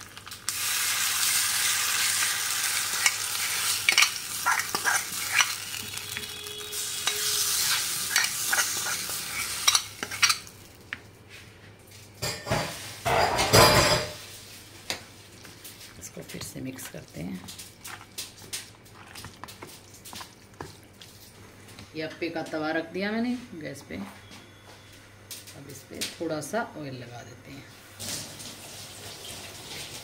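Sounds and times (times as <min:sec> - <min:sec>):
oil sizzling: 0:00.0 - 0:11.0
spoon clicking and scraping: 0:02.8 - 0:06.3, 0:07.0 - 0:10.5.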